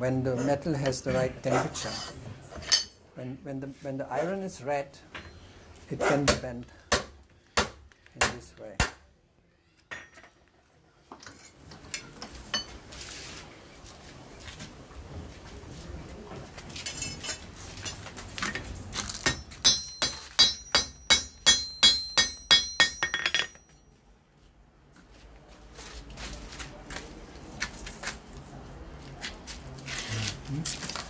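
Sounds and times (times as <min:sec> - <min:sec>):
hammer ringing on anvil: 0:19.3 - 0:23.8.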